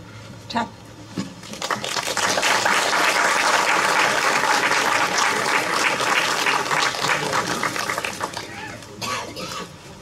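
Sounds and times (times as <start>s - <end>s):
audience applauding: 1.5s - 8.9s.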